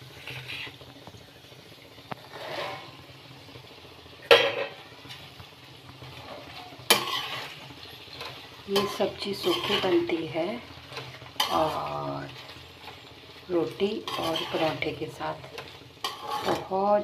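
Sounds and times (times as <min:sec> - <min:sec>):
spatula scraping pan: 0:00.0 - 0:00.8, 0:02.1 - 0:03.1, 0:06.0 - 0:17.0.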